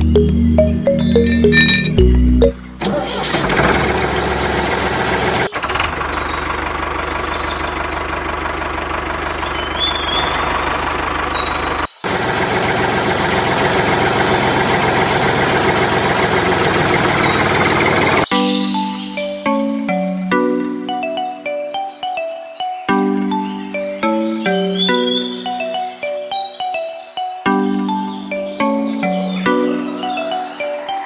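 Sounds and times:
music: 0.0s - 3.3s, 18.2s - 31.0s
short high chirps: 0.1s - 2.8s
tractor engine chugging: 1.1s - 18.3s.

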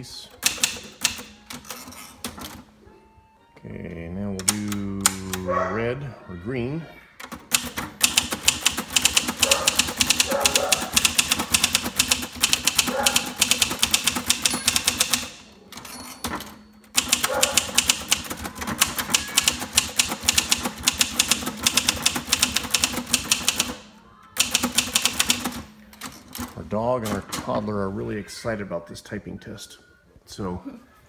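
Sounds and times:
typewriter keys clacking: 0.4s - 2.6s, 7.2s - 27.3s.

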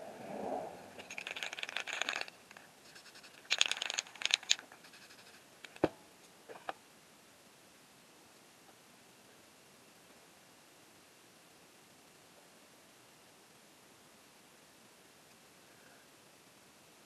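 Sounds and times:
spray can rattling: 1.0s - 5.8s.

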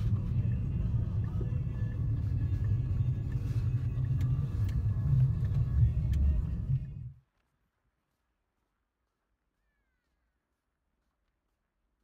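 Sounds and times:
low outdoor rumble: 0.0s - 7.8s
faint clicks: 3.3s - 6.6s.

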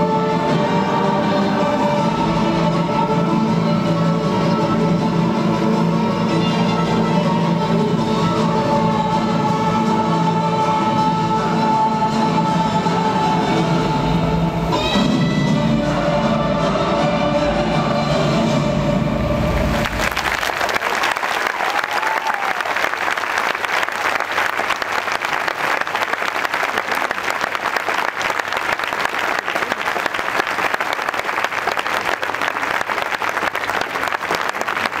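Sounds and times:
music: 0.0s - 20.5s
large audience applauding: 19.7s - 35.0s.

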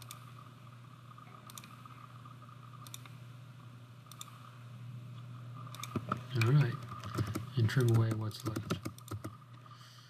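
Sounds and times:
computer mouse clicks: 0.0s - 0.3s, 1.4s - 1.8s, 2.8s - 3.2s, 4.1s - 4.4s, 5.7s - 9.4s
faint low hum: 0.0s - 10.0s.

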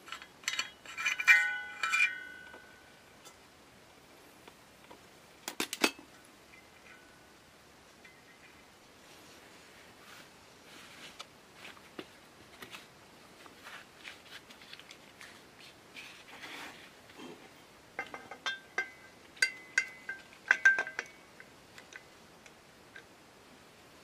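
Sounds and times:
wrench clinking on metal valve: 0.1s - 2.7s, 18.0s - 21.2s
rubber gloves rustling: 9.0s - 17.6s.

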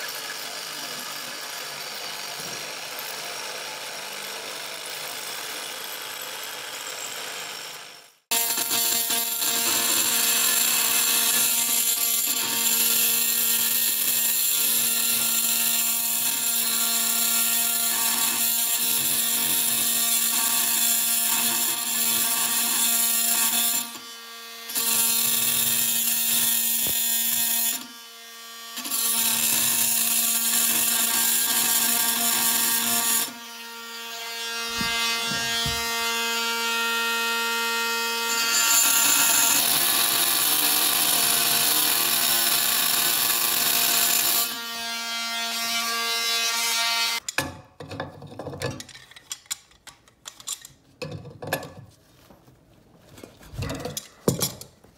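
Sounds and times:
oscillating tool cutting metal: 28.7s - 47.2s.

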